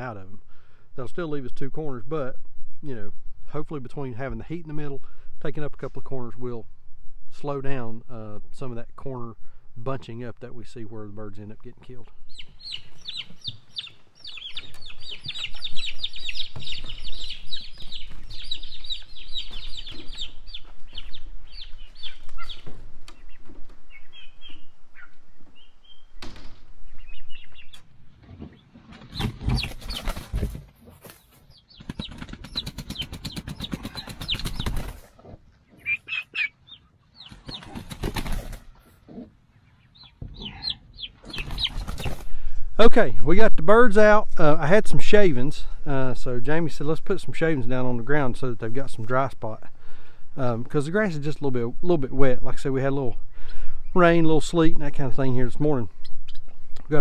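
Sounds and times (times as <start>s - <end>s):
turkey poults peeping: 12.2s - 42.3s, 50.8s - 56.8s
wing flapping and rustling: 12.9s - 24.0s, 28.1s - 35.3s, 37.2s - 39.0s, 41.2s - 42.4s.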